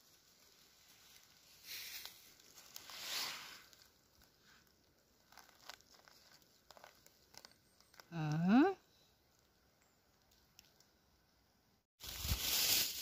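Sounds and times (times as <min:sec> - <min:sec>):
leaves and twigs rustling: 0:00.0 - 0:08.4, 0:12.0 - 0:13.0.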